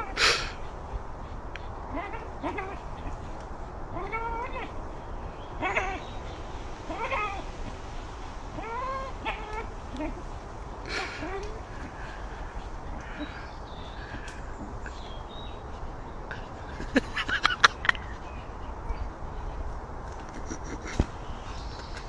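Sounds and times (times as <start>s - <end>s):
dog whining: 0.0s - 0.6s, 1.6s - 4.8s, 5.6s - 7.5s, 8.5s - 12.3s.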